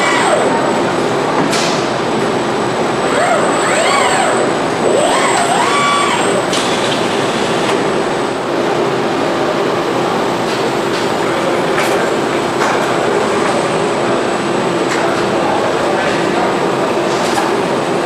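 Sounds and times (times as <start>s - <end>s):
robot arms whining: 0.0s - 0.6s, 3.0s - 7.8s
steady machine hum: 0.0s - 18.0s.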